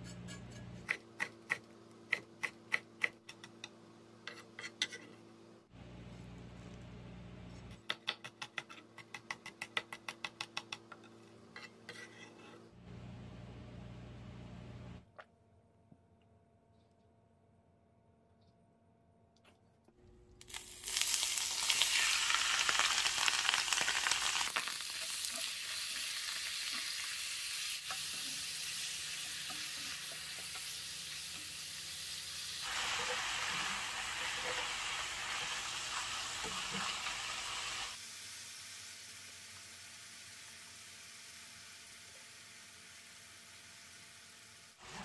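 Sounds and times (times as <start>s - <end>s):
noodles sizzling in hot oil: 20.4s - 45.0s.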